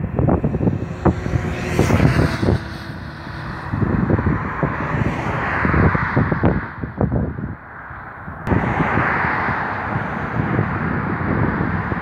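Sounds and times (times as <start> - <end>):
buzzing drone from coaches: 0.0 - 5.4
wind buffeting microphone: 0.0 - 12.0.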